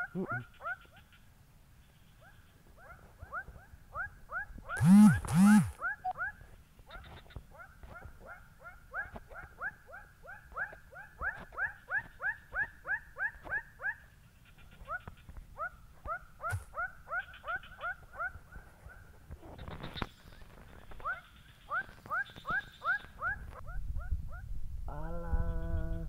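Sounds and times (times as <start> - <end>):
sharp click: 4.8 - 5.8, 16.5 - 16.7.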